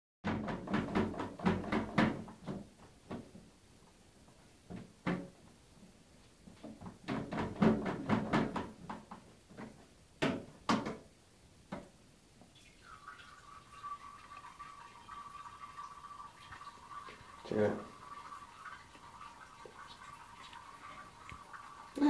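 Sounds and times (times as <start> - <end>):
plastic toilet seat knocking: 0.2 - 3.3, 6.8 - 11.0.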